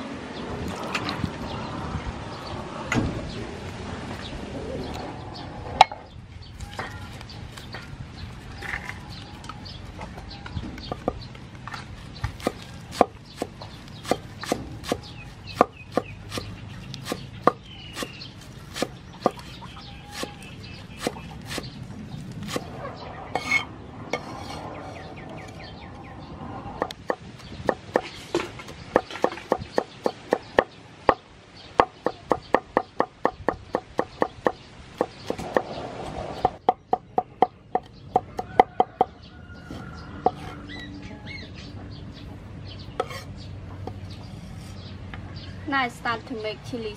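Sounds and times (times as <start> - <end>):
cleaver chopping on wooden board: 12.2 - 21.7, 31.8 - 35.7, 36.4 - 39.1.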